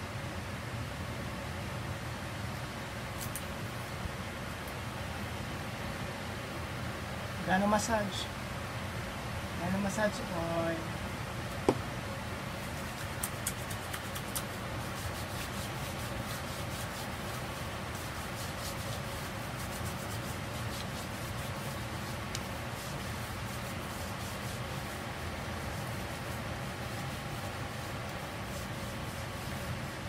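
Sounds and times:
steady hiss: 2.2 - 30.0
oiled hands rubbing skin: 3.2 - 3.6, 12.6 - 30.0.

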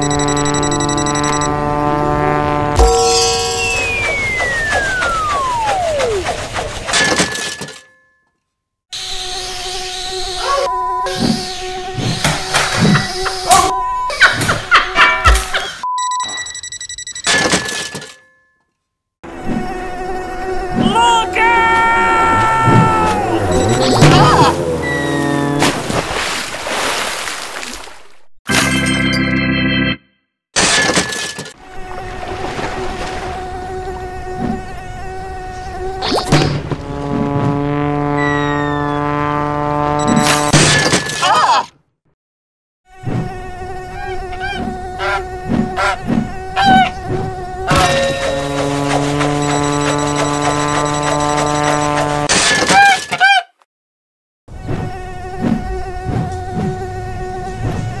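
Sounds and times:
drone whine: 0.0 - 6.6, 21.6 - 25.8, 47.7 - 52.3
drone propellers buzzing: 0.0 - 6.9, 19.3 - 25.8, 33.7 - 40.5, 47.3 - 52.3
whistle sliding down in pitch: 2.8 - 6.2
organ-like chord: 28.6 - 30.1.

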